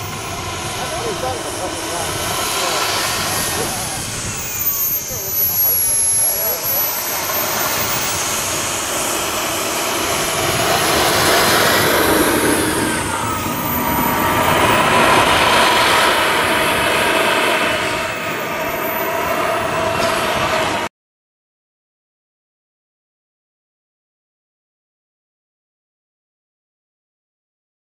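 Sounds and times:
model jet engine whine: 0:00.0 - 0:20.9.

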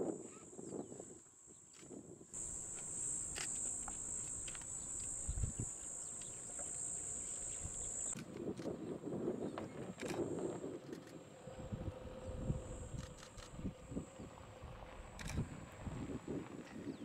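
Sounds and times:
high-pitched insect chirring: 0:02.4 - 0:08.2.

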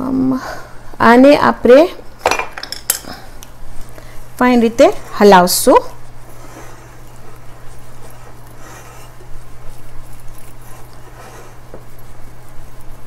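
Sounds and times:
whisk scraping in a bowl: 0:04.0 - 0:13.0.

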